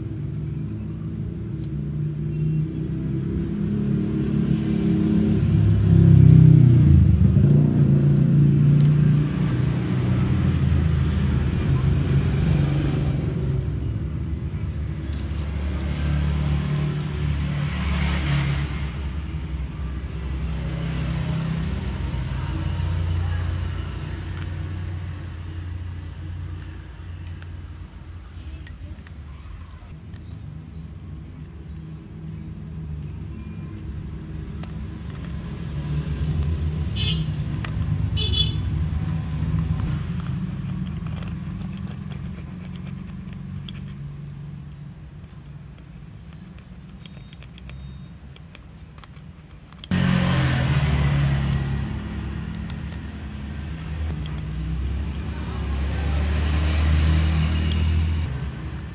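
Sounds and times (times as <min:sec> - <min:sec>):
sharp metal clicks: 0:07.3 - 0:10.8, 0:32.9 - 0:55.7, 0:57.0 - 0:58.9
knife scraping metal: 0:38.7 - 0:50.0, 0:51.4 - 0:55.2.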